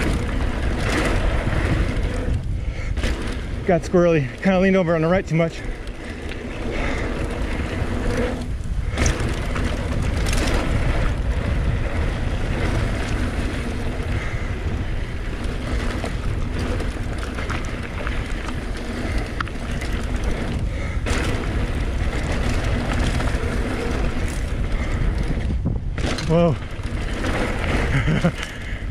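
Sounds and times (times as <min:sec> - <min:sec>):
tyre rumble on dirt: 0:00.0 - 0:04.5
bike knocks and rattles: 0:00.0 - 0:28.9
wind buffeting microphone: 0:00.0 - 0:28.9.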